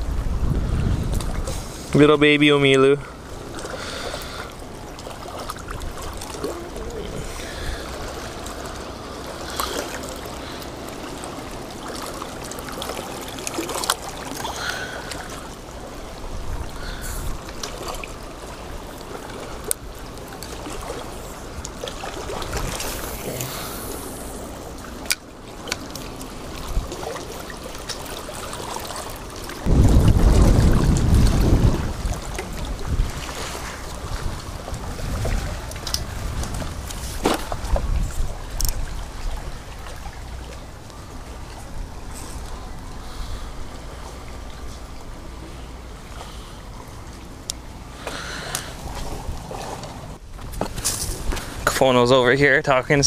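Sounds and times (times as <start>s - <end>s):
wind buffeting microphone: 0.0s - 2.3s, 29.6s - 45.2s
water lapping over rocks: 0.0s - 53.0s.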